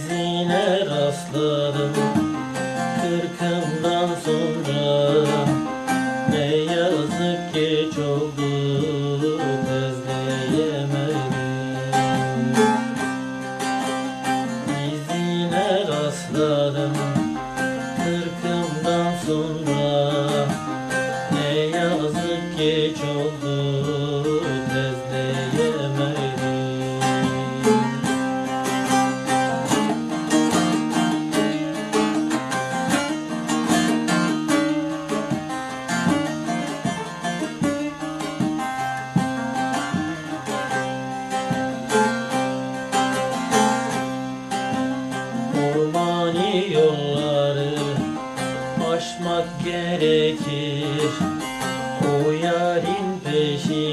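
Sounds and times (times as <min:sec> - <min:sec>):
long-necked lute strummed and plucked: 0:00.0 - 0:53.9.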